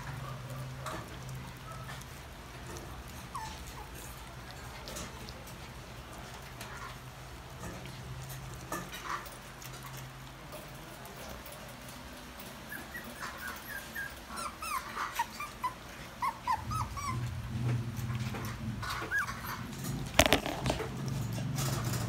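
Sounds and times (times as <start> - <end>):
dogs whimpering and yipping: 0.0 - 4.8, 12.2 - 20.0.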